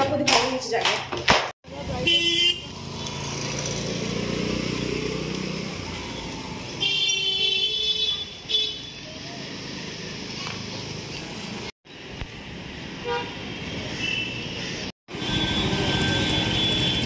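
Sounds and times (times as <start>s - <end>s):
vehicle horn honking: 2.0s - 2.7s, 6.8s - 8.9s, 15.2s - 17.0s
vehicle passing: 2.6s - 6.8s.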